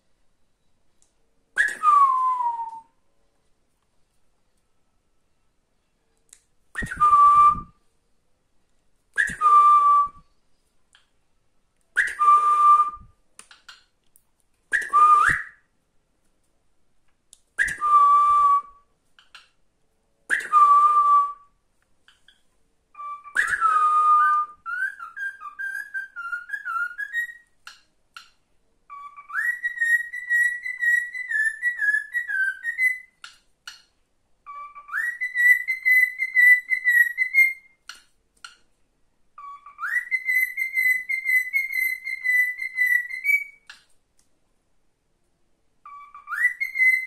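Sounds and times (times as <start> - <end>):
warbling whistled song: 1.6 - 3.0, 6.8 - 7.7, 9.2 - 10.2, 14.7 - 15.7, 17.6 - 18.8, 23.0 - 27.5, 28.9 - 33.2, 34.5 - 37.8, 39.4 - 43.7, 45.9 - 47.0.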